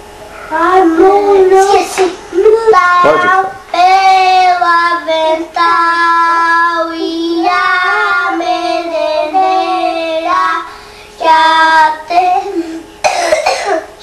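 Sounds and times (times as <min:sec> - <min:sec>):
young boy singing: 0:00.5 - 0:12.8.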